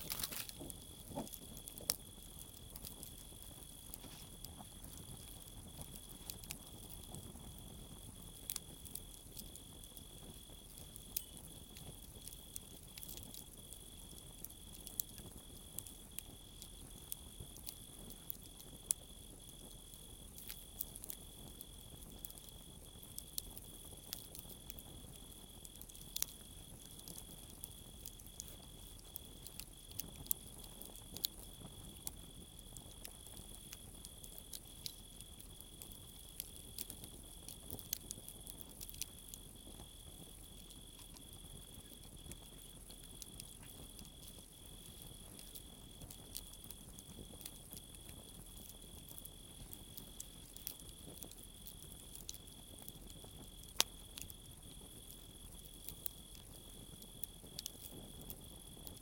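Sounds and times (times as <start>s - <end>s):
campfire crackling and popping: 0.0s - 59.0s
crickets trilling: 0.0s - 59.0s.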